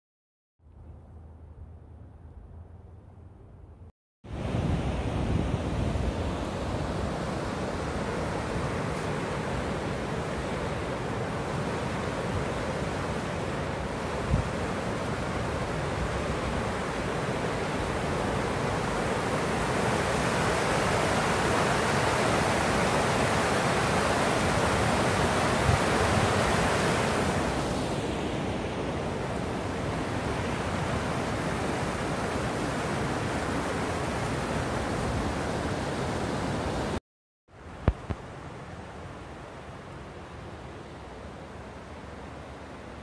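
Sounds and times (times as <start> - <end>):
waterfall and creek rushing: 6.0 - 37.0.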